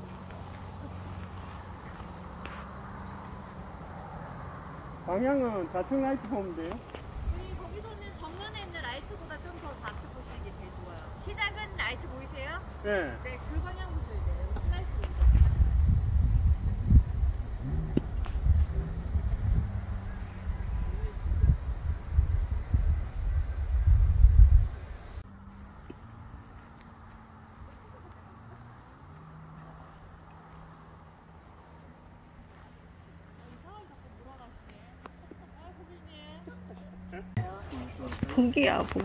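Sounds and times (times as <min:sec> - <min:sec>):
insects chirring: 0:00.0 - 0:39.0
wind buffeting microphone: 0:07.0 - 0:10.2, 0:13.4 - 0:25.2.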